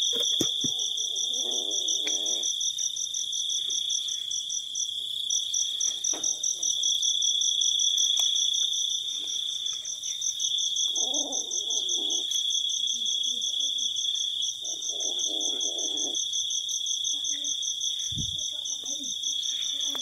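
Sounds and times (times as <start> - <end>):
crickets trilling: 0.0 - 20.0.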